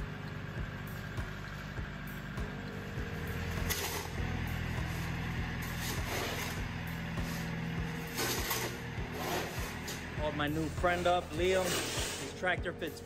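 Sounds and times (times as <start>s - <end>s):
tractor diesel engine running: 0.0s - 13.0s
shovel scraping gravel: 3.5s - 12.6s.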